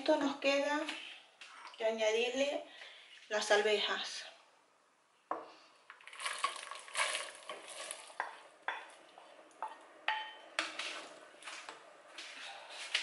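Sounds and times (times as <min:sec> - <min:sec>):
peas tumbling into a pot: 0:05.9 - 0:08.6
spoon knocking against pot: 0:08.2 - 0:08.9, 0:09.6 - 0:10.4.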